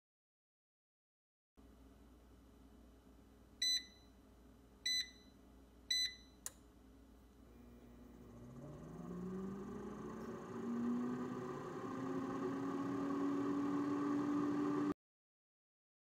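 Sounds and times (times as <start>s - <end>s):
air fryer fan humming: 7.5s - 15.0s.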